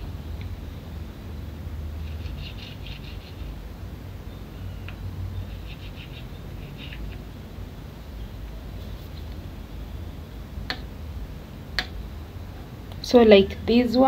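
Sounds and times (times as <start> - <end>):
low hum: 0.0 - 14.0
animal chirping rapidly: 5.4 - 7.2.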